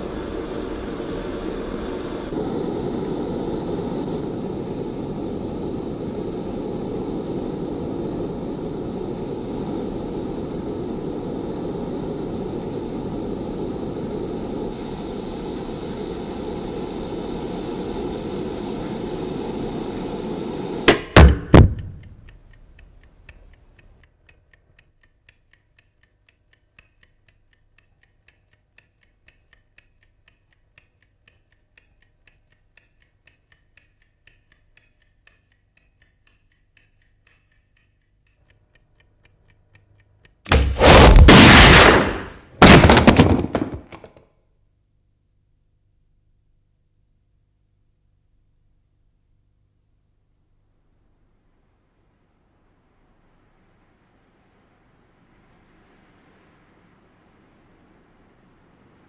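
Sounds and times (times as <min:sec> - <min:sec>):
faint regular ticking: 0:02.3 - 0:21.0, 0:21.7 - 0:40.5.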